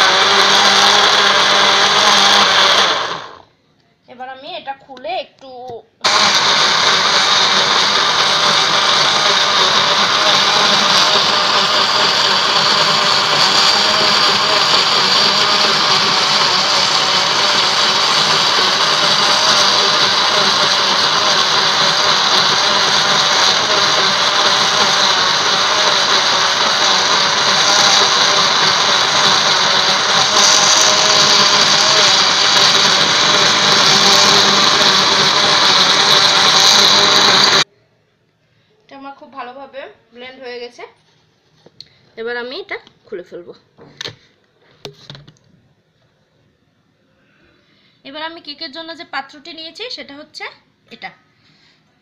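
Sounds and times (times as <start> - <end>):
blender whirring: 0.0 - 3.5, 6.0 - 37.7.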